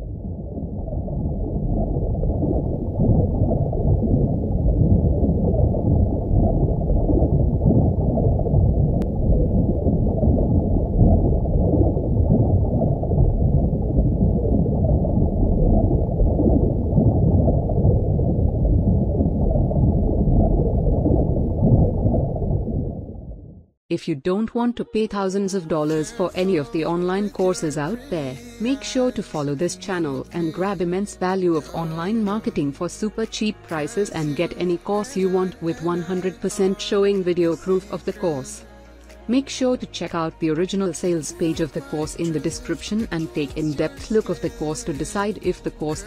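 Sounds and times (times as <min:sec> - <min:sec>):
muffled underwater water rumble: 0:00.0 - 0:23.8.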